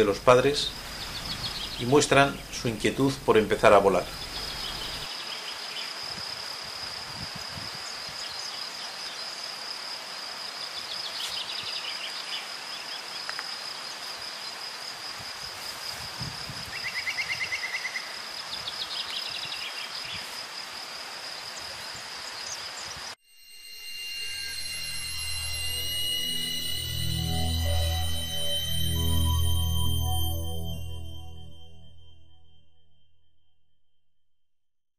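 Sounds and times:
high-pitched insect drone: 0:00.0 - 0:05.1, 0:23.2 - 0:32.2.

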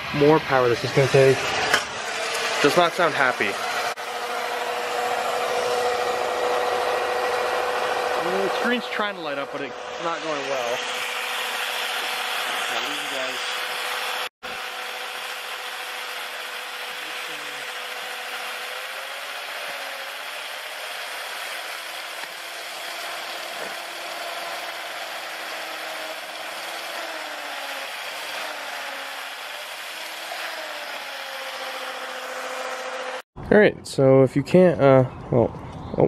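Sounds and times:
wavering generator whine: 0:00.0 - 0:20.3.

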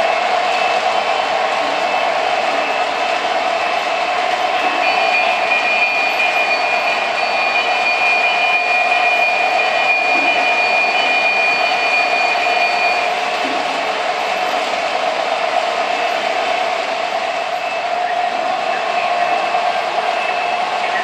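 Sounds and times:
high-pitched whine: 0:01.7 - 0:14.7.

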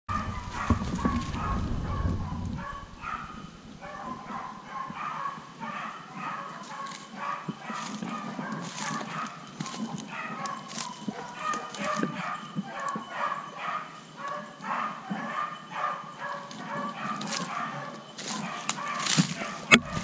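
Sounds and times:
wind rumble on microphone: 0:00.1 - 0:04.7, 0:19.2 - 0:20.0
dogs barking and yipping: 0:00.1 - 0:20.0.

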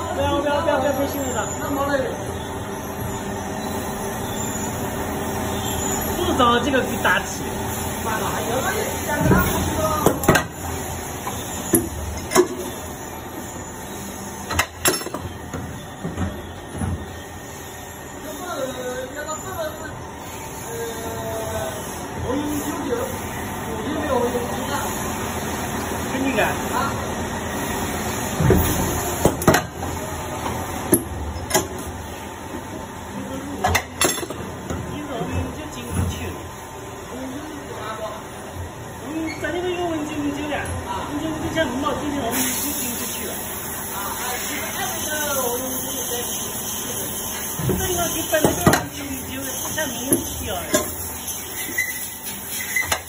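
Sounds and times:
injection moulding machine noise: 0:00.0 - 0:53.0
steady machine noise: 0:39.8 - 0:52.9.

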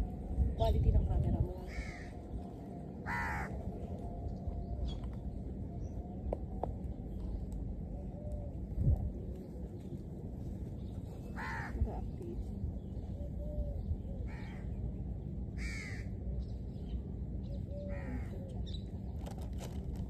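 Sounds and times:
low background rumble: 0:00.0 - 0:20.0
crow cawing: 0:01.7 - 0:02.2, 0:03.0 - 0:03.6, 0:11.4 - 0:11.8, 0:15.6 - 0:16.1, 0:17.9 - 0:18.3.

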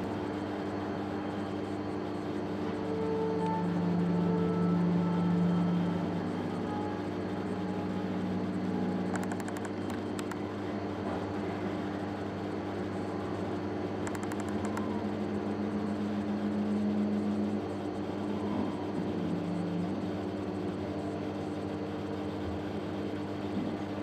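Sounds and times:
aquarium equipment humming: 0:00.0 - 0:24.0
rapid clicks: 0:09.1 - 0:10.4, 0:14.0 - 0:14.8.

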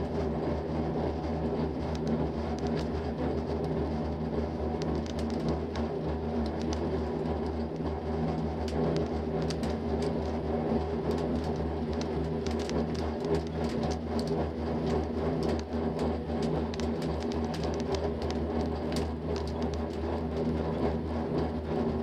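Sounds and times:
gondola cabin rumble and hum: 0:00.0 - 0:22.0
cabin ticks and rattles: 0:11.0 - 0:20.5.

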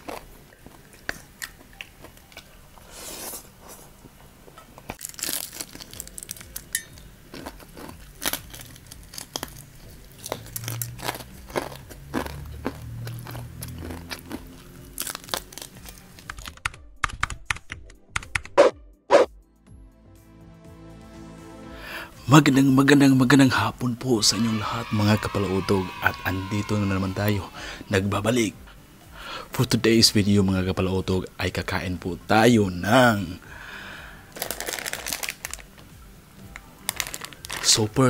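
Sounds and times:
crunching fried chicken: 0:00.0 - 0:02.5, 0:04.9 - 0:06.7, 0:07.3 - 0:16.6, 0:34.3 - 0:35.7, 0:36.6 - 0:37.9.

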